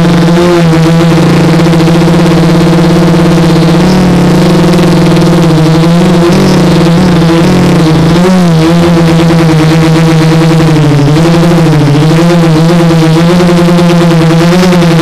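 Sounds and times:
quadcopter motors buzzing: 0:00.0 - 0:15.0.

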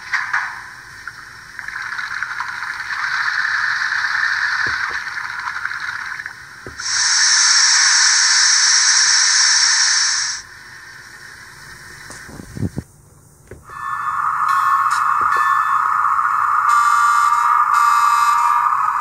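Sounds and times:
steam hiss through small speaker: 0:06.7 - 0:12.8.

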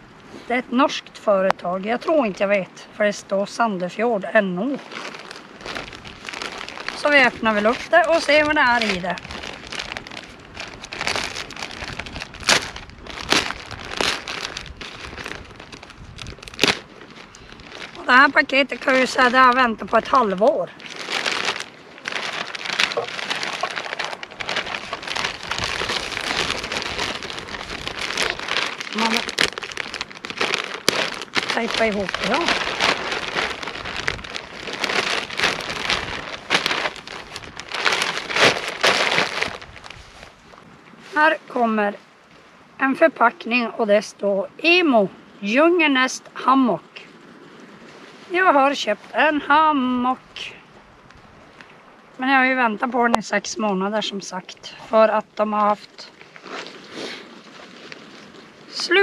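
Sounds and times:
plastic bag crinkling: 0:04.7 - 0:40.4
plastic bag tearing: 0:04.8 - 0:40.0
sharp plastic crackles: 0:04.8 - 0:40.6.

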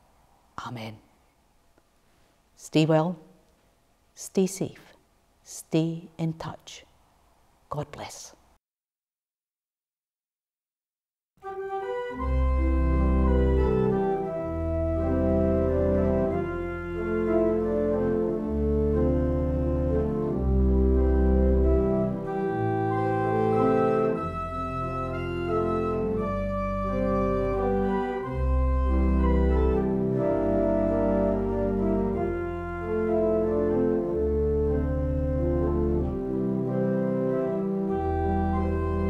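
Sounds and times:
organ music: 0:11.4 - 0:39.0.

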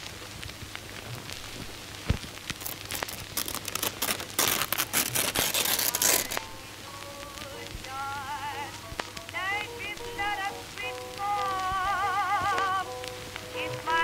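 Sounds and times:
paper poster tearing: 0:02.6 - 0:06.6.

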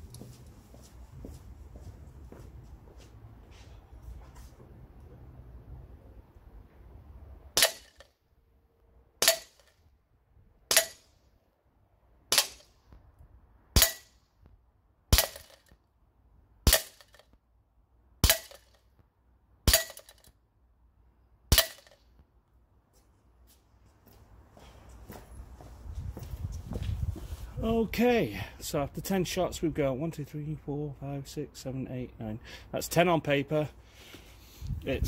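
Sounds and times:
airsoft pistol shots: 0:07.6 - 0:08.1, 0:09.2 - 0:09.8, 0:10.7 - 0:11.1, 0:12.3 - 0:12.8, 0:13.8 - 0:14.2, 0:15.1 - 0:15.7, 0:16.7 - 0:17.2, 0:18.2 - 0:18.8, 0:19.7 - 0:20.3, 0:21.5 - 0:22.0.

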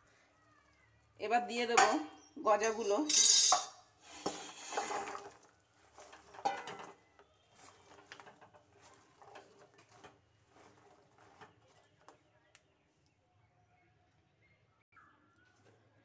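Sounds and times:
fried sticks clattering into pan: 0:01.7 - 0:12.2
spatula scraping pan: 0:02.8 - 0:12.2.

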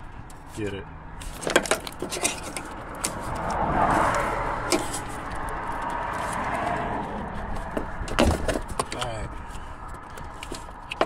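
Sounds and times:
traffic hum: 0:00.0 - 0:11.0
vehicle passing: 0:02.3 - 0:10.9.

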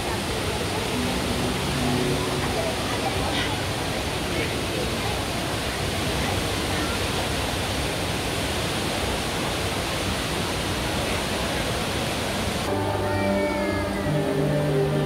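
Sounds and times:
music with long held notes: 0:00.0 - 0:04.1, 0:12.7 - 0:15.0
indoor waterfall roaring: 0:00.0 - 0:15.0.

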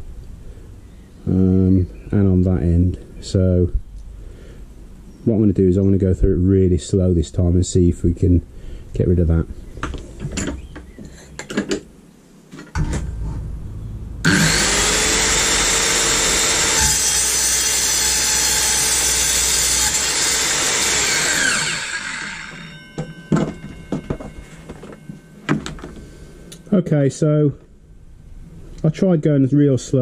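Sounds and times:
knocks: 0:12.6 - 0:13.6, 0:22.9 - 0:26.0
circular saw cutting pipe: 0:14.2 - 0:23.0.

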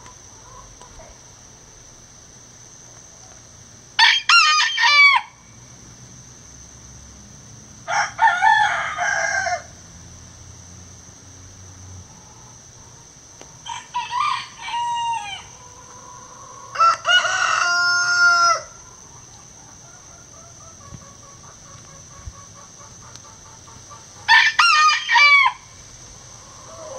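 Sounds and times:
rooster crowing: 0:04.0 - 0:05.4, 0:07.8 - 0:09.8, 0:13.6 - 0:20.6, 0:24.2 - 0:26.9.

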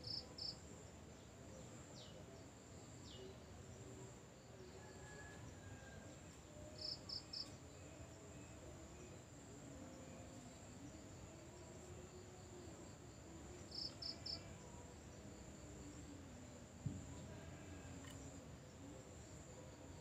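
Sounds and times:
high-pitched insect trill: 0:13.0 - 0:16.2.

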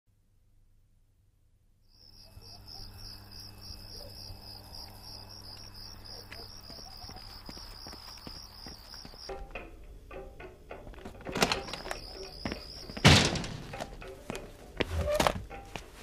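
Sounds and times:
cricket chirping: 0:01.8 - 0:10.4, 0:11.2 - 0:14.2.

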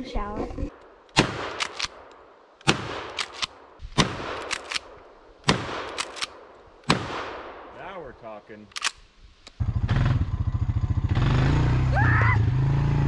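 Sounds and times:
sharp clicks: 0:00.7 - 0:07.0, 0:08.7 - 0:09.6
shotgun shots: 0:01.1 - 0:07.9.

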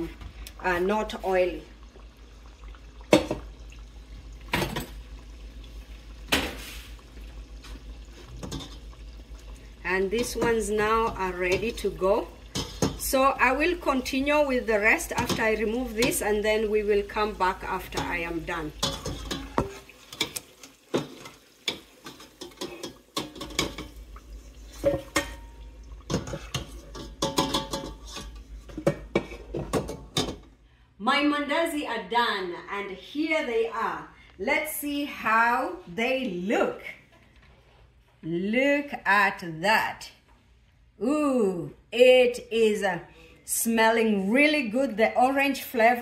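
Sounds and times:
dough deep-frying in oil: 0:00.0 - 0:30.4
wire skimmer scraping metal pot: 0:10.2 - 0:13.2, 0:17.3 - 0:30.4
skimmer knocking on metal pot: 0:17.9 - 0:20.3, 0:26.1 - 0:28.2.

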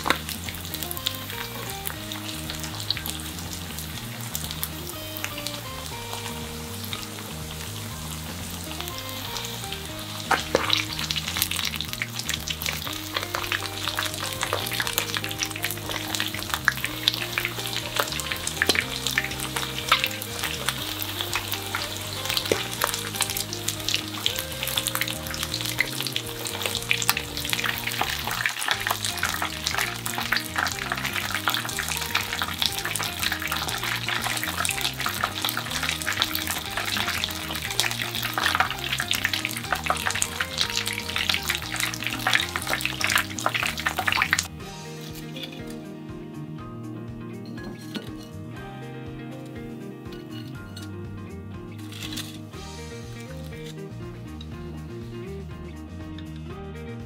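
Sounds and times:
chicken sizzling in frying oil: 0:00.0 - 0:45.9
soft background music: 0:00.0 - 0:57.0.

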